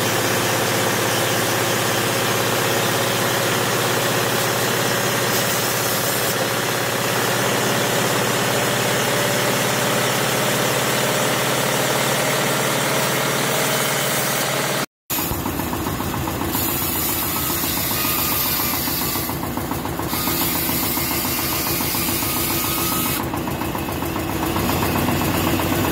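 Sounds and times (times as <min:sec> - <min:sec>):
band saw ripping wood: 0:16.5 - 0:19.4, 0:20.0 - 0:23.2.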